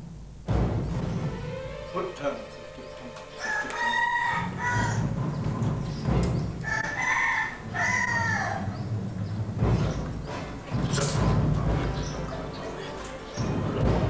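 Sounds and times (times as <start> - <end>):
rooster crowing: 3.3 - 5.2, 6.6 - 8.8.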